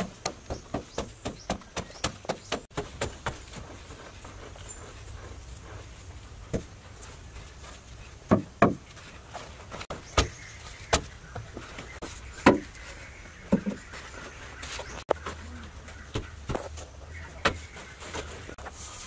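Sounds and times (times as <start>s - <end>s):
wooden poles knocking: 0.0s - 3.8s, 8.2s - 9.1s, 9.7s - 14.1s.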